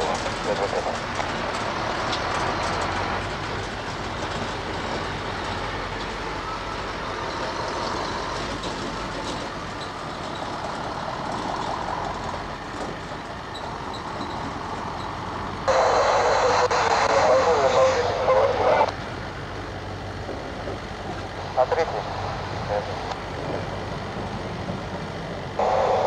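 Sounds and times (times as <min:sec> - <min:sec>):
distant jet engines running: 0:00.0 - 0:26.0.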